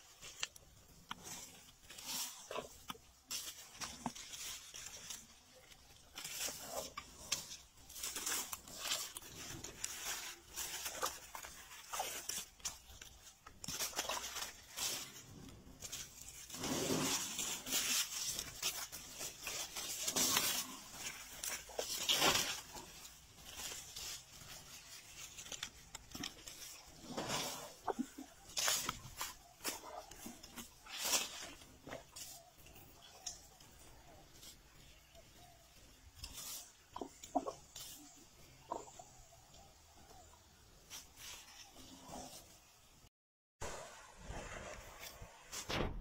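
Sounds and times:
leaves and branches rustling: 0.0s - 45.7s
twigs cracking: 0.1s - 27.0s.

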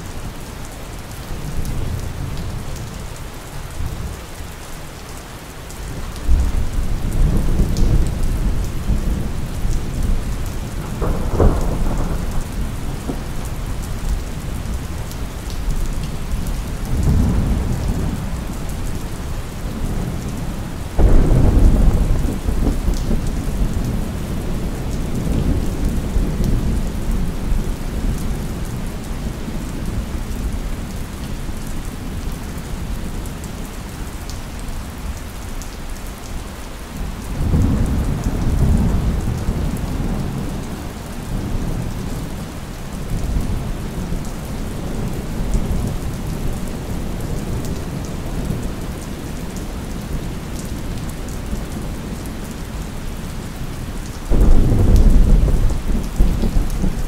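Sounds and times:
steady rain: 0.0s - 57.0s
thunder rumbling: 6.2s - 15.0s, 19.3s - 27.8s, 54.3s - 57.0s
loud thunder clap: 21.0s - 23.2s, 54.3s - 57.0s.

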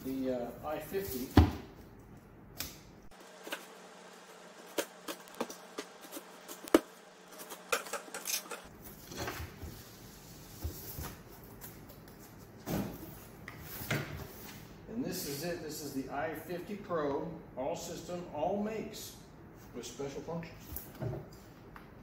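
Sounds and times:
knife slitting packing tape: 7.4s - 8.7s.

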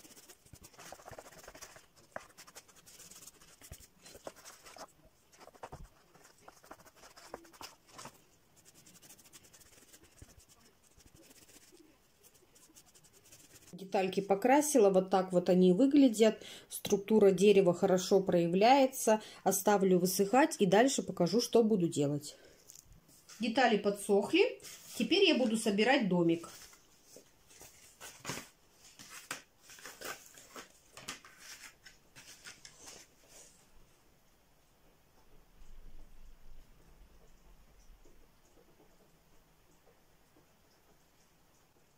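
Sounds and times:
paintbrush strokes on cardboard: 0.0s - 13.8s, 24.5s - 25.5s.

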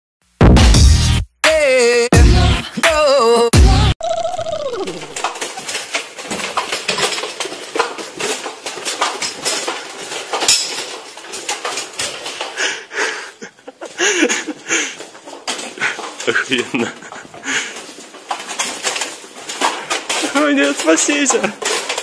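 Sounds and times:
short wavering vocal sound: 1.6s - 5.2s
quick footsteps on hard floor: 4.9s - 22.0s
kit clinking and rattling: 5.1s - 12.6s, 13.8s - 22.0s.

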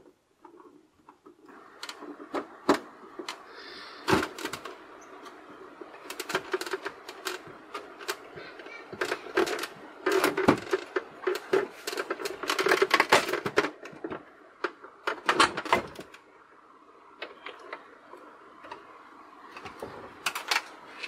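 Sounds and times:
hard plastic parts clicking and rattling: 0.0s - 16.4s, 17.2s - 21.0s.

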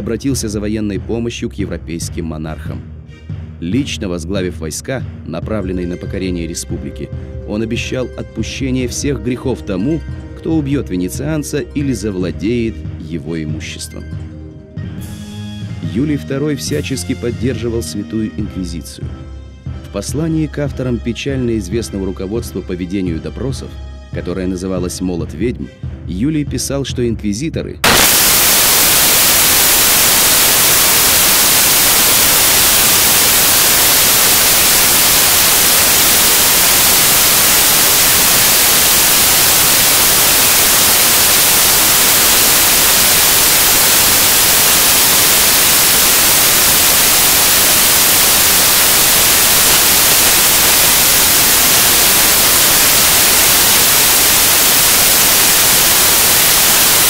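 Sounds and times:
loud static hiss: 27.8s - 57.0s.

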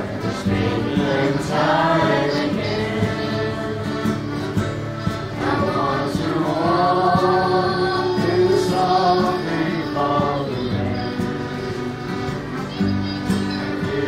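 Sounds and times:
boy singing: 0.0s - 4.2s, 5.4s - 14.0s
voices singing along: 0.0s - 14.0s.

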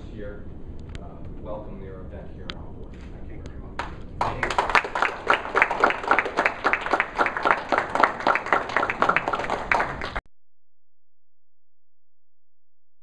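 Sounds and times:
audience applauding: 4.2s - 10.2s.

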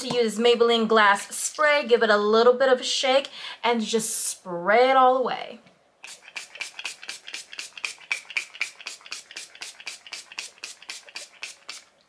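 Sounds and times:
spray bottle spritzing: 6.0s - 12.0s.

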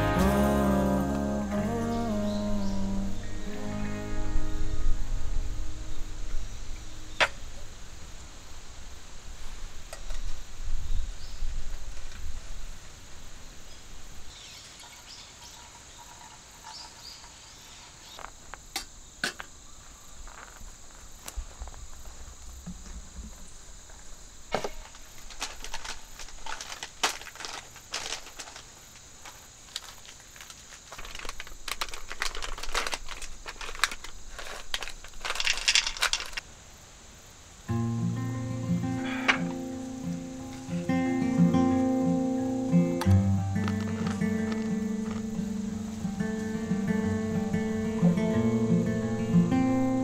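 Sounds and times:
insects chirring: 0.0s - 50.0s
crunching and rustling: 14.3s - 18.7s, 19.4s - 36.5s, 43.0s - 46.8s.

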